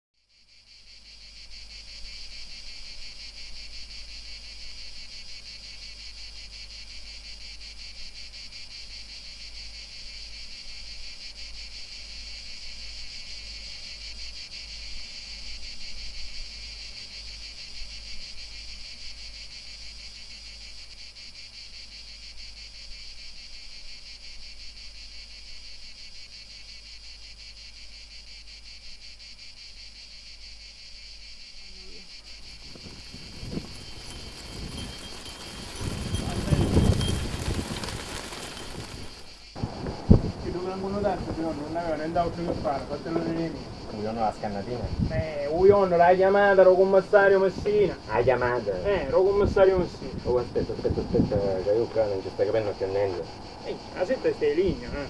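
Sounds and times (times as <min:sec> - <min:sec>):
chorus of insects shrilling: 0:31.3 - 0:55.0.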